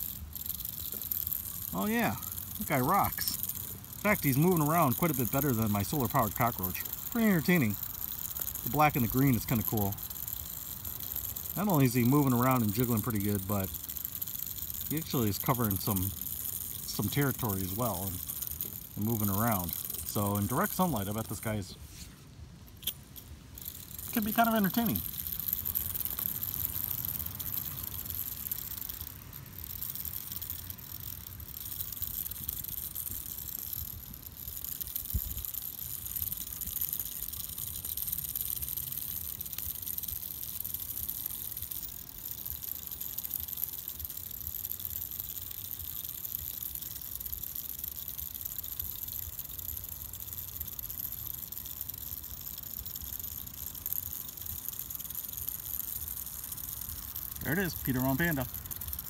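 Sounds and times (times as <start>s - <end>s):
high hiss: 0.0s - 45.9s.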